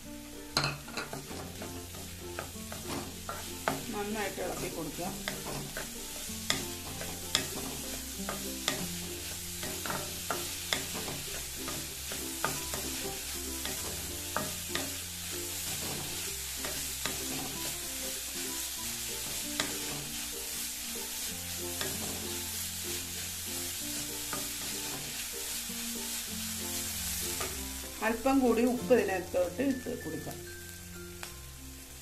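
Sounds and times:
vegetables sizzling in oil: 0.0s - 32.0s
spatula scraping metal pan: 0.9s - 15.0s.

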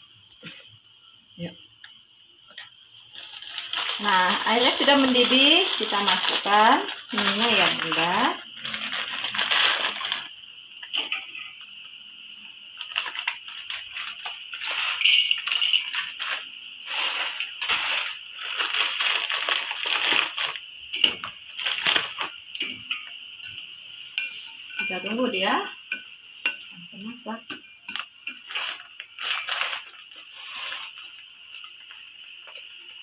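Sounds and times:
water boiling in a wok: 0.0s - 33.0s.

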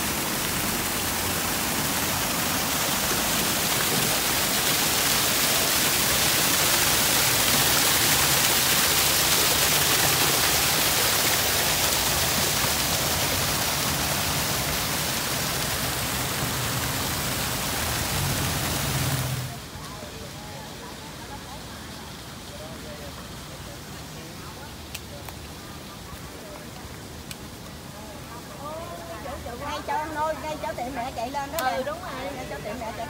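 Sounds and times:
waterfall rushing: 0.0s - 19.8s.

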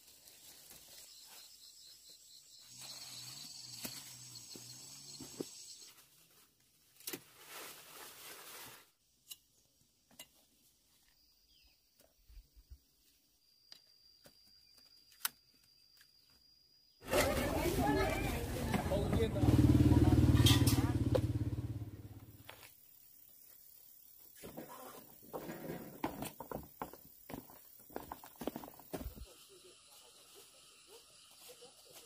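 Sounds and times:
rustling noise: 5.8s - 9.0s.

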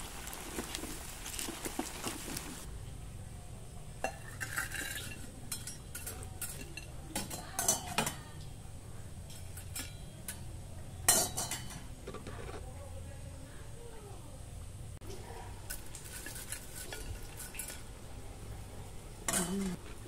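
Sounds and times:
metal spoon clinking on wok: 4.0s - 8.2s, 9.3s - 10.5s, 11.1s - 11.8s.

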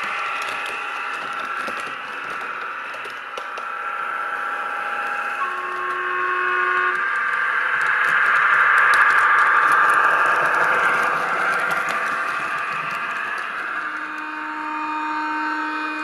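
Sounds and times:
model train diesel engine: 0.0s - 16.0s
wheels on track: 0.0s - 16.0s.

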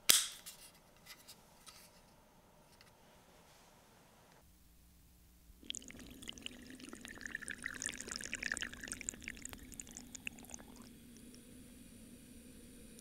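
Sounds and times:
low steady hum: 0.8s - 13.0s
water pouring and splashing: 5.6s - 10.9s.

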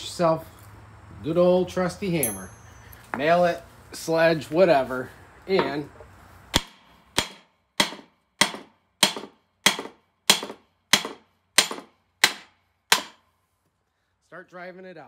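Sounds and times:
hammer striking metal: 2.2s - 2.9s, 6.6s - 13.2s.

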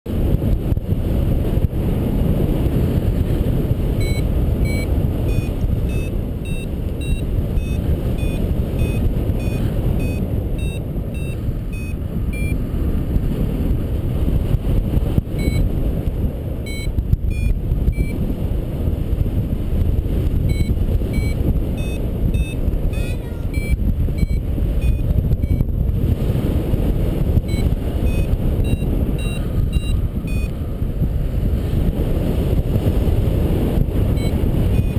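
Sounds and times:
wind buffeting microphone: 0.1s - 34.9s
variometer beeping: 3.9s - 12.6s, 15.2s - 15.7s, 16.6s - 18.2s, 20.3s - 25.8s, 27.4s - 30.6s, 34.1s - 34.9s.

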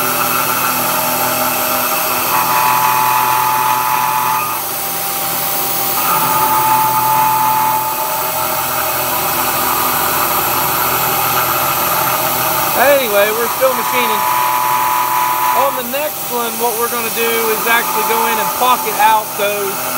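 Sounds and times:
cutting tool whine on steel: 0.0s - 19.9s
milling machine hum: 0.0s - 19.9s.

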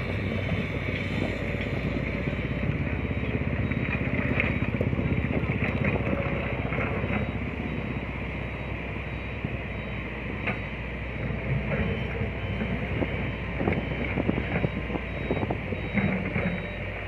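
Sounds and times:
diesel truck engine running: 0.0s - 17.0s.

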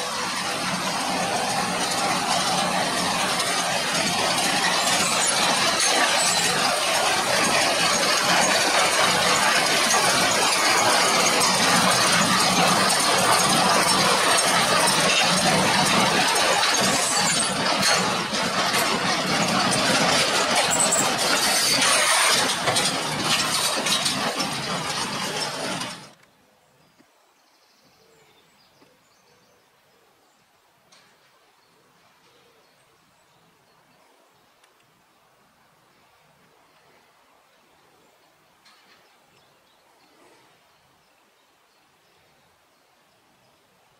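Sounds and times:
baler clinking and rattling: 0.0s - 26.2s
tractor engine running: 0.0s - 26.3s.

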